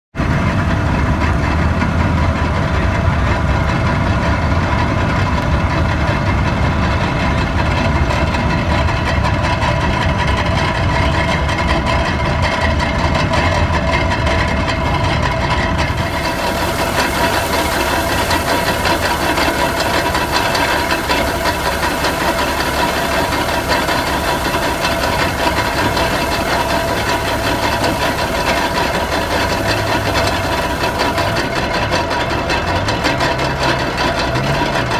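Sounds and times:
engine idling: 0.2 - 34.9
threshing machine running: 6.1 - 34.9
straw fed into drum hissing: 15.8 - 31.9.

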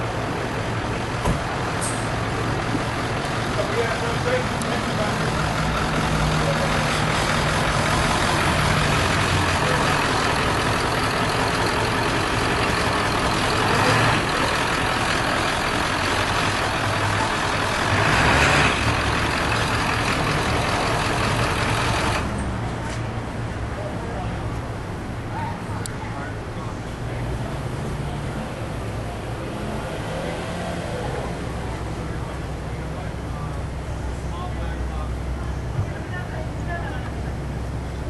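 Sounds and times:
vehicle engine idling: 0.0 - 29.5.

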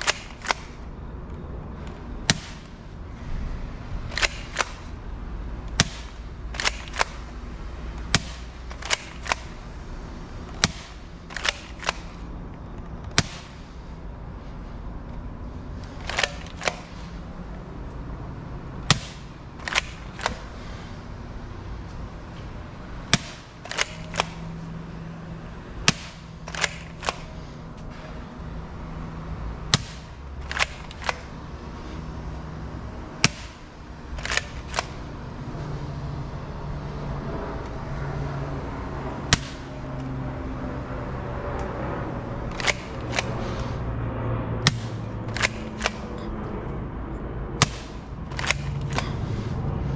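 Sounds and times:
salt gun snapping and clacking: 0.0 - 0.8, 4.1 - 4.9, 5.7 - 7.2, 8.0 - 9.6, 10.5 - 12.3, 15.8 - 17.1, 18.9 - 20.5, 23.1 - 24.5, 25.9 - 27.3, 29.7 - 31.3, 33.2 - 35.0, 42.5 - 43.7, 44.6 - 46.2, 47.6 - 49.2.

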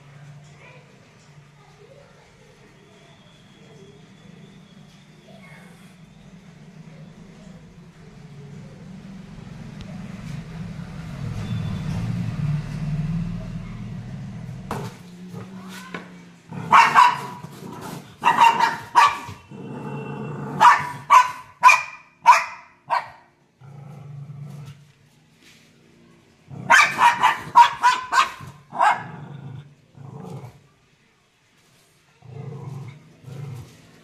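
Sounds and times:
dog growling: 16.5 - 18.3, 19.4 - 21.1, 23.6 - 24.9, 26.5 - 27.6, 28.7 - 30.7, 32.2 - 33.9
dog barking: 16.6 - 17.5, 18.2 - 19.5, 20.5 - 23.3, 26.6 - 29.2.

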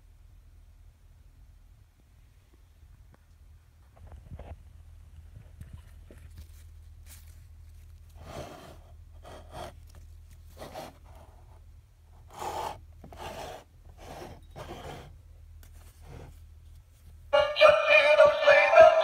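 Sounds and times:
rubbing and rustling of plush toy: 5.3 - 11.7, 15.7 - 17.3.

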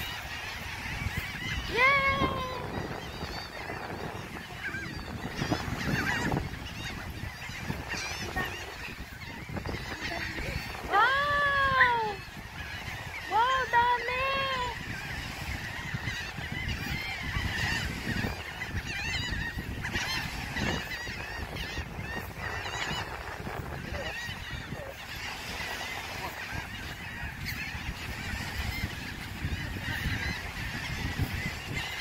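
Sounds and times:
gulls calling: 0.0 - 32.0
wind rumbling on microphone: 0.0 - 32.0.

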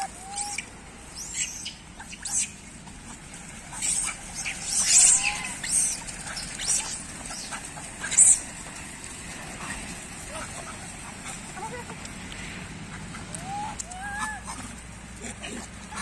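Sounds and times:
monkey cooing: 0.0 - 3.1, 3.7 - 7.5, 12.9 - 16.0
monkeys squealing and chirping: 0.0 - 8.5, 12.9 - 16.0.

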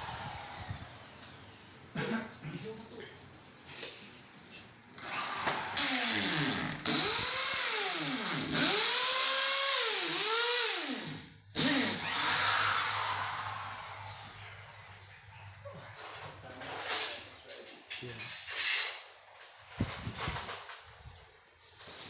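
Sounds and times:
electric drill boring into wall: 0.0 - 1.2, 5.0 - 14.7.

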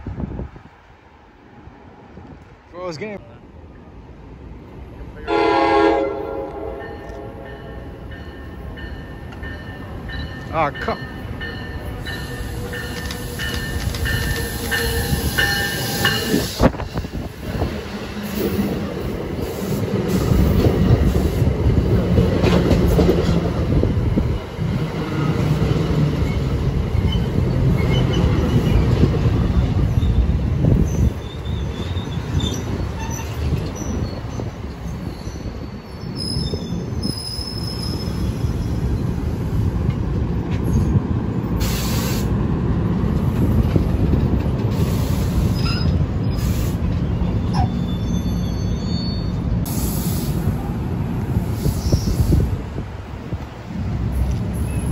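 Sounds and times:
train wheels rumbling on rails: 6.1 - 54.9.

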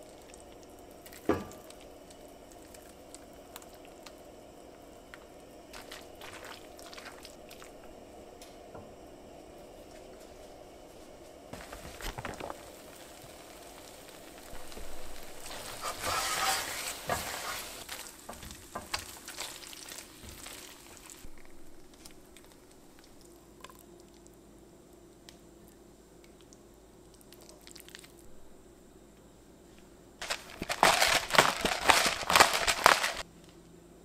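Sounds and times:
noodles stirred with spatula: 0.0 - 8.2, 9.8 - 21.3, 30.2 - 33.2
steady low hum: 0.0 - 18.8, 20.3 - 27.4.

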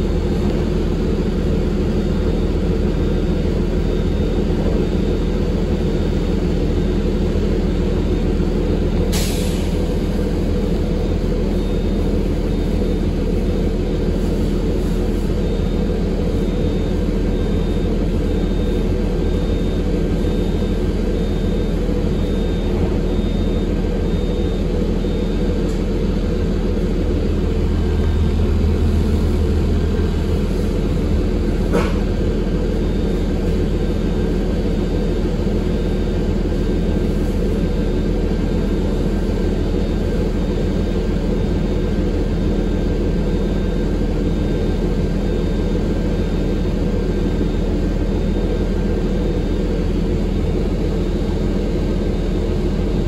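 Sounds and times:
bus engine and road rumble: 0.0 - 53.0
faint high beep: 15.1 - 34.0.

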